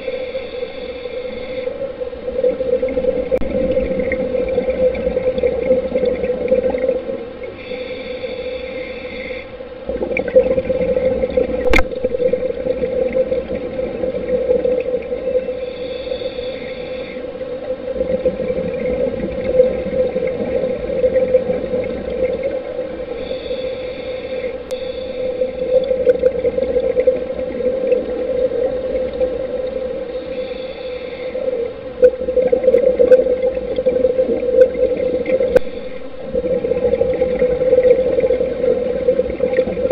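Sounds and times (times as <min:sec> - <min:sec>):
regulator inhale hiss: 0:00.0 - 0:02.0, 0:07.4 - 0:09.8, 0:15.3 - 0:17.8, 0:22.7 - 0:26.4, 0:29.4 - 0:32.0, 0:35.5 - 0:36.4
muffled underwater drone: 0:00.0 - 0:39.9
exhaled bubbles rushing: 0:02.2 - 0:07.3, 0:09.9 - 0:15.4, 0:17.6 - 0:23.1, 0:25.3 - 0:30.1, 0:32.0 - 0:39.9.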